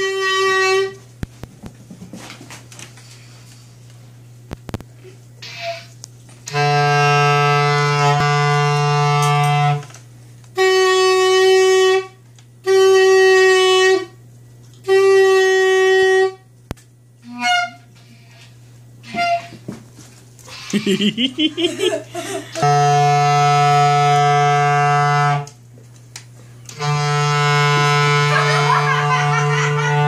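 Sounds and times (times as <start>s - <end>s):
clarinet notes: 0.0s - 1.0s, 5.4s - 9.9s, 10.6s - 14.2s, 14.8s - 16.4s, 17.2s - 18.4s, 19.0s - 19.6s, 22.5s - 25.6s, 26.7s - 30.0s.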